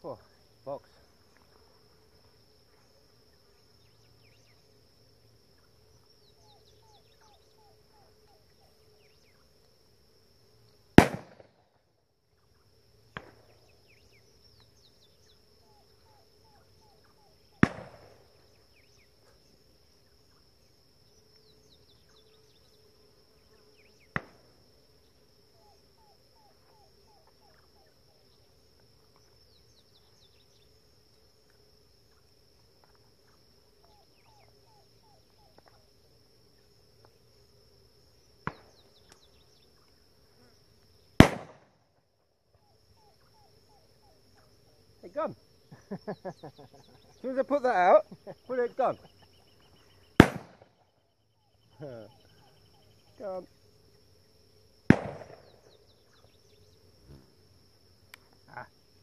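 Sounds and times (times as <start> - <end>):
high insect drone: 0.0 - 59.0
chirping: 5.6 - 9.5
shotgun shots: 11.0 - 11.6, 17.6 - 18.2, 41.2 - 41.7, 50.2 - 50.7, 54.9 - 55.6.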